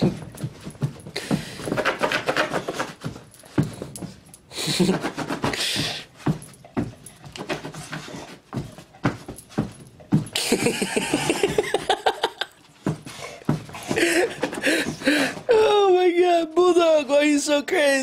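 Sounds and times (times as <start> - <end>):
dog breathing rapidly: 0.0 - 10.4, 12.7 - 15.5
dog paws thumping on floor: 0.0 - 17.4.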